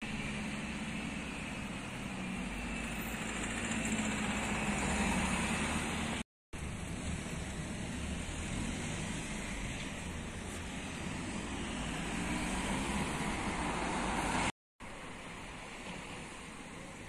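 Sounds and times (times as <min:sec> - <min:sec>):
road traffic: 0:00.0 - 0:17.0.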